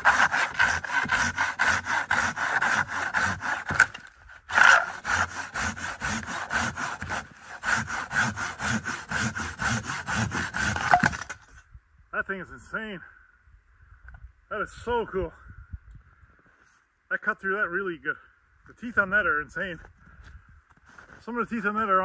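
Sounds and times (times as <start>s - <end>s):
hand saw cutting log: 0.0s - 11.4s.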